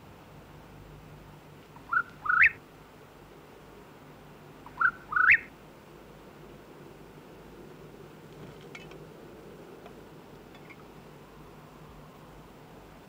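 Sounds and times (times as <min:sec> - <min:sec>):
whistled bird-like calls: 0:01.8 - 0:02.6, 0:04.7 - 0:05.5.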